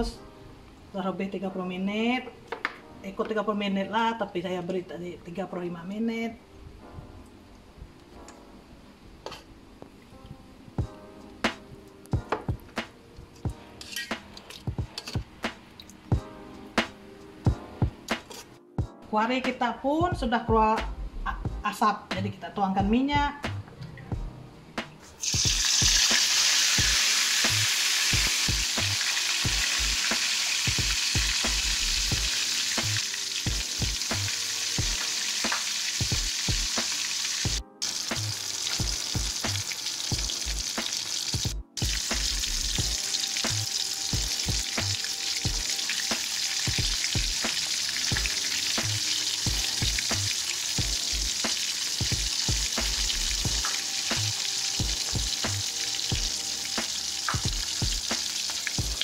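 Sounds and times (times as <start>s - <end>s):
food deep-frying in hot oil: 25.2s - 59.0s.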